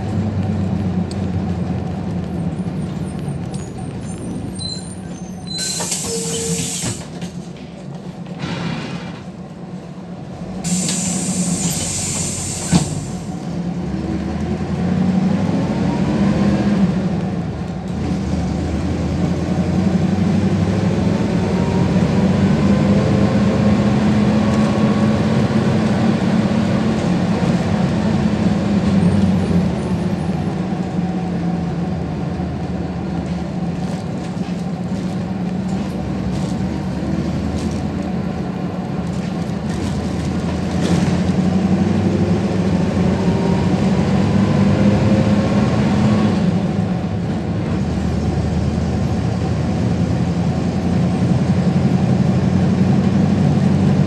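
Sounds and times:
bus engine revving: 0.0 - 54.0
compressed air hiss: 5.8 - 7.1, 10.6 - 13.3.

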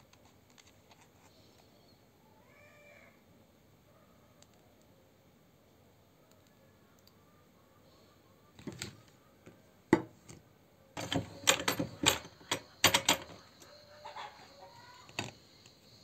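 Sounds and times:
objects knocking on a table: 9.9 - 10.2.

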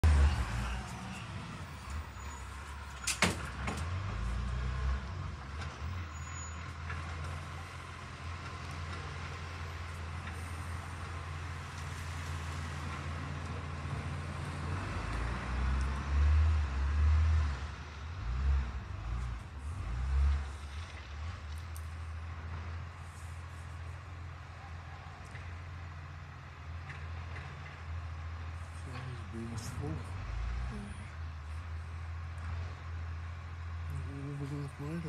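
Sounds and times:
truck diesel engine running: 0.0 - 16.0.

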